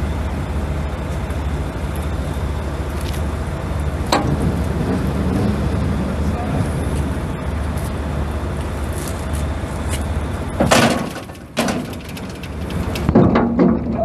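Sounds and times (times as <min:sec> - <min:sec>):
diesel truck idling: 0:00.0 - 0:14.0
loud bangs and rattles: 0:10.6 - 0:14.0.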